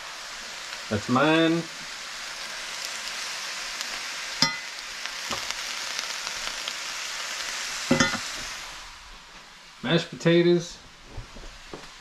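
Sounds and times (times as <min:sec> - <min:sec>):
vegetables sizzling in a skillet: 0:00.0 - 0:12.0
utensils clattering in pan: 0:07.9 - 0:08.4.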